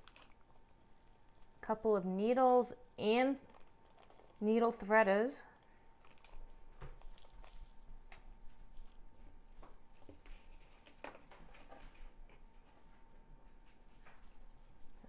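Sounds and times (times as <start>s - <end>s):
plastic packet clicks: 6.0s - 7.5s.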